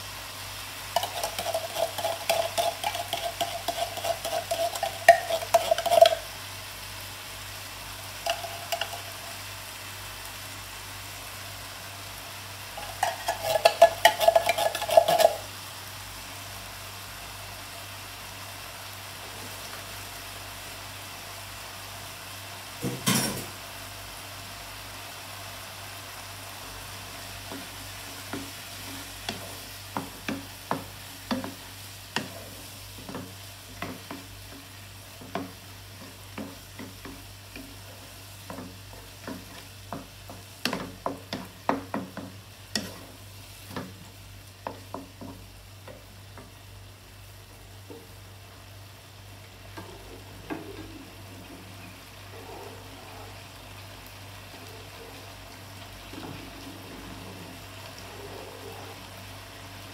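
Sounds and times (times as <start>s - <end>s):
meat sauce sizzling in skillet: 0.0s - 59.9s
wooden spatula scraping pan: 1.0s - 6.3s, 12.8s - 15.5s, 35.2s - 44.0s.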